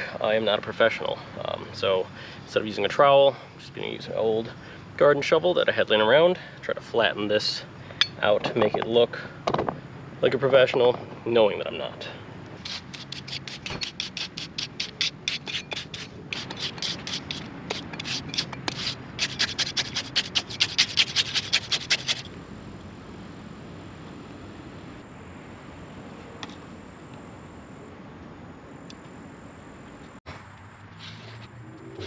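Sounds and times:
shovel scraping wet concrete: 12.6 - 22.3.

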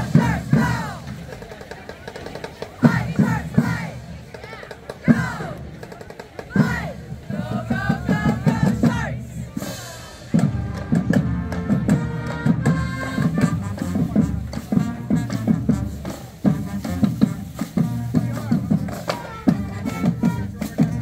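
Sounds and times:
drumline beating cadence: 0.0 - 21.0
marching band playing: 0.0 - 21.0.

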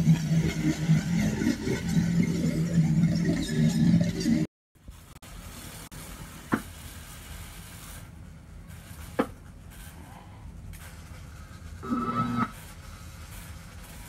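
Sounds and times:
amplifier hum and hiss: 4.8 - 14.0.

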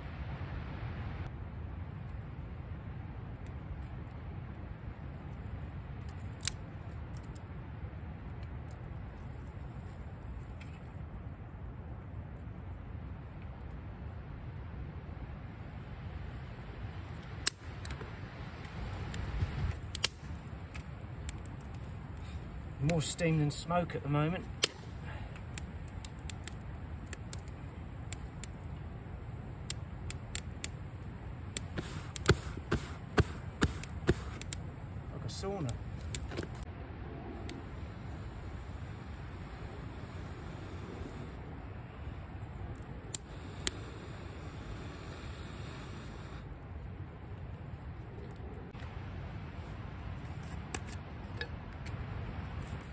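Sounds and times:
steady low rumble: 0.0 - 52.9
wet wood fire crackling: 0.0 - 52.9
sticks laid on a fire: 17.0 - 28.9, 29.6 - 36.7, 50.0 - 52.9.

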